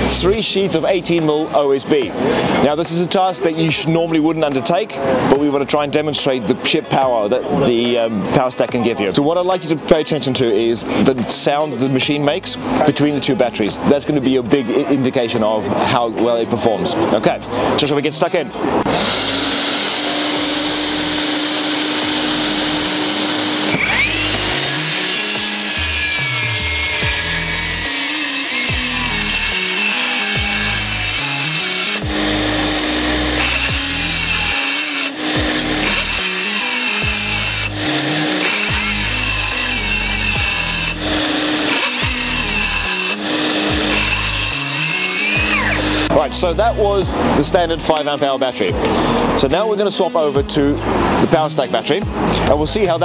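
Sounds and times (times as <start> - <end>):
circular saw cutting wood: 18.8 - 46.6.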